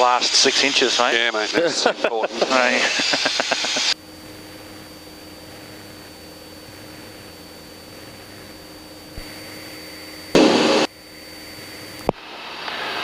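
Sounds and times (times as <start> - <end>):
airplane engine drone: 0.0 - 13.0
cabin airflow: 0.0 - 13.0
loud noise burst: 9.2 - 11.0.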